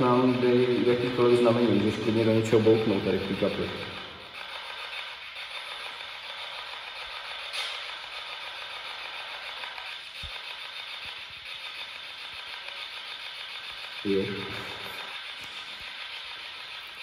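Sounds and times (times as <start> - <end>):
static hiss: 0.0 - 17.0.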